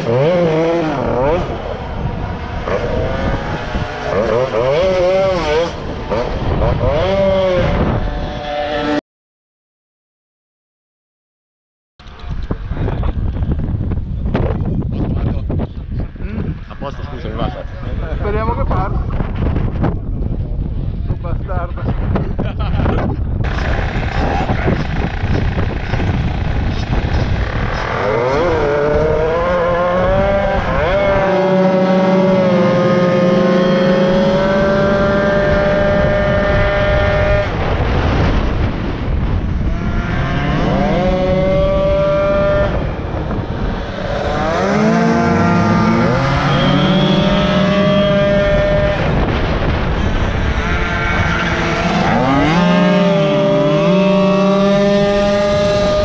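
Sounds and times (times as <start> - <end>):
moped engine revving: 0.0 - 9.0, 23.4 - 56.0.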